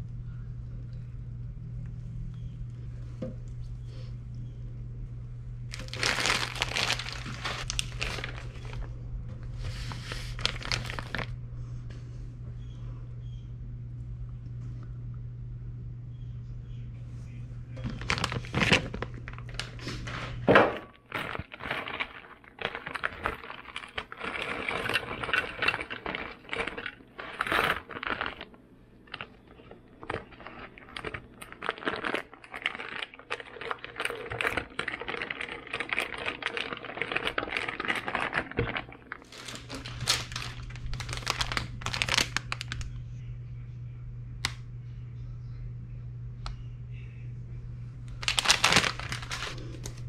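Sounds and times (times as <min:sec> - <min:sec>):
low steady hum: 0:00.0 - 0:50.0
crinkling and rustling: 0:05.7 - 0:11.4, 0:17.7 - 0:43.0, 0:48.1 - 0:50.0.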